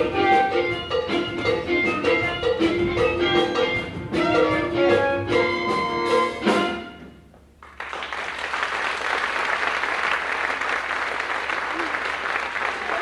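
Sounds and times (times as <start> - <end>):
audience applause: 7.6 - 13.0.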